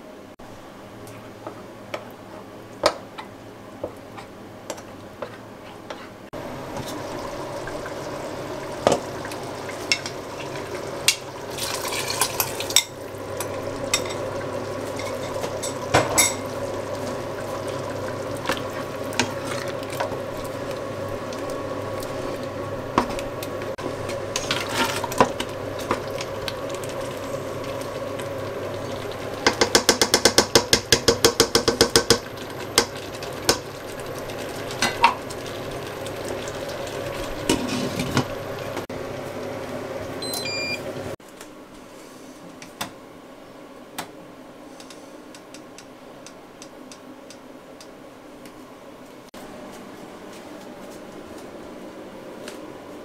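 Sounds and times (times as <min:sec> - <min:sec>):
cooker humming: 0:00.0 - 0:53.0.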